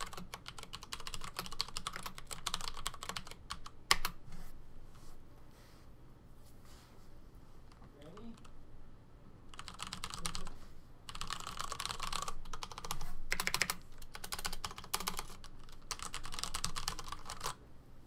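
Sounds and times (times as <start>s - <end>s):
mechanical keyboard typing: 0.0s - 4.2s, 9.5s - 17.6s.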